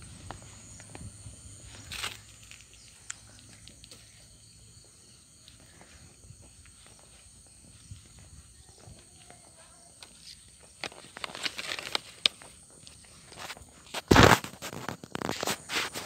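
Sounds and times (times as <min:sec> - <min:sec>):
footsteps outdoors: 0:00.0 - 0:16.0
hissing rustle: 0:05.5 - 0:16.0.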